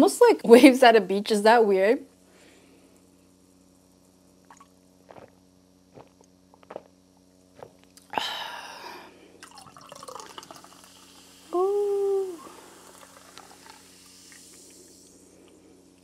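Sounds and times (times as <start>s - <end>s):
person gulping drink: 4.4s - 8.5s, 9.4s - 15.1s
person sighing ahh: 8.0s - 9.2s, 11.5s - 13.0s
person humming: 11.5s - 12.7s.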